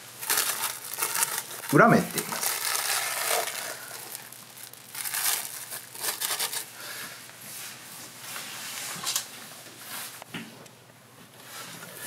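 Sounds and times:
cling film crinkling: 0.0s - 6.8s.

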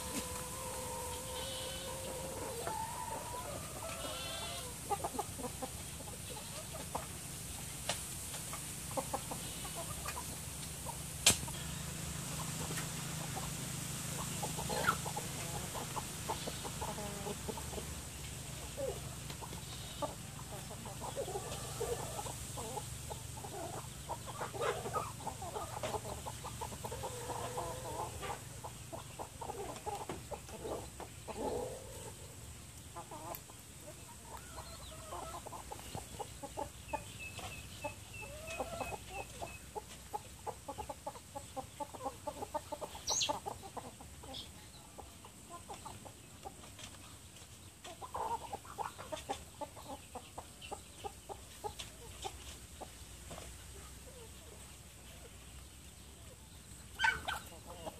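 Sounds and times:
low steady hum: 0.0s - 45.8s
chickens clucking: 0.0s - 57.9s
chicks peeping: 0.0s - 57.9s.

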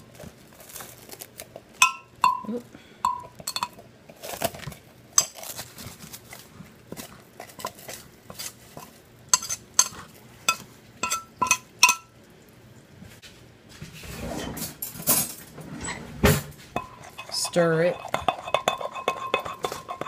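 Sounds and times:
plastic wrap crinkling: 0.0s - 1.8s, 4.2s - 8.7s
knife clinking against glass: 1.8s - 2.5s, 10.5s - 12.1s, 16.8s - 20.0s.

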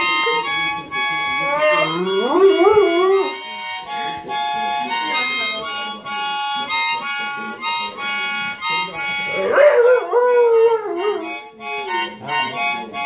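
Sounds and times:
harmonica playing chords: 0.0s - 13.0s
dog howling: 1.5s - 3.3s.

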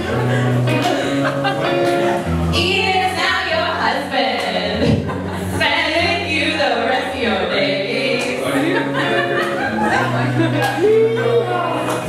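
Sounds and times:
women singing together: 2.5s - 9.0s.

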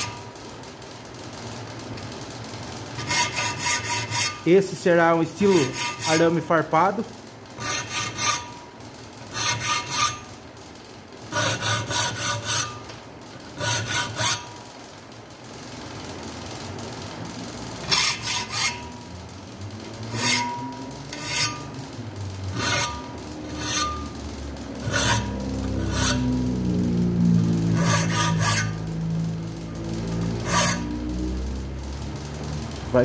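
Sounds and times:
hand file rasping on steel: 3.0s - 4.5s, 5.4s - 6.5s, 7.6s - 8.6s, 9.3s - 10.3s, 11.3s - 12.8s, 13.6s - 14.5s, 17.9s - 19.0s, 20.1s - 21.7s, 22.5s - 24.1s, 24.8s - 26.4s, 27.7s - 28.8s, 30.4s - 31.0s.

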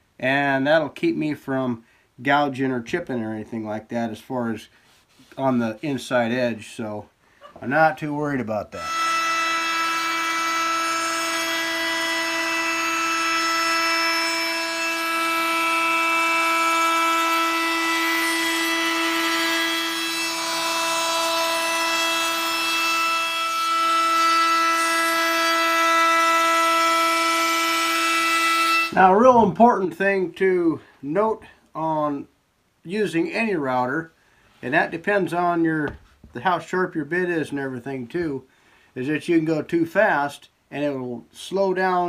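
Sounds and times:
router high whine cutting wood: 8.8s - 29.0s.

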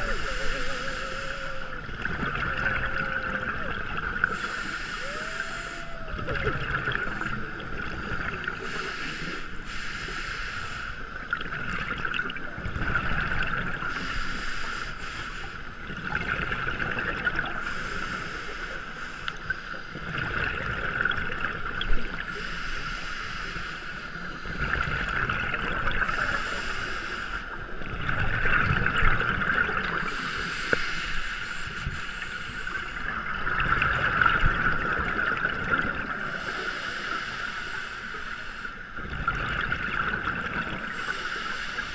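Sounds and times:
regulator hiss: 0.0s - 1.9s, 4.2s - 6.1s, 8.5s - 11.0s
bubbles gurgling underwater: 0.0s - 5.4s, 6.0s - 8.7s, 11.2s - 13.9s, 15.8s - 17.7s, 20.0s - 22.3s, 24.5s - 26.4s, 27.7s - 30.2s, 33.0s - 36.5s, 39.0s - 41.0s.

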